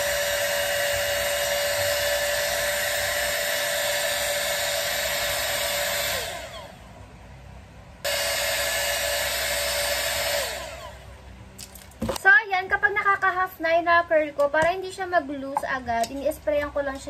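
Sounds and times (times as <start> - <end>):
motor winding down: 0.0 - 6.8, 8.1 - 11.1
hair styler blower whine: 0.0 - 6.9, 8.0 - 11.2.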